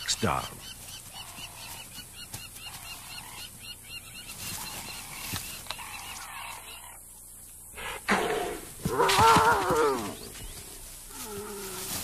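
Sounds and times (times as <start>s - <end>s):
soft wild animal calls: 0.6s - 7.1s, 11.1s - 12.0s.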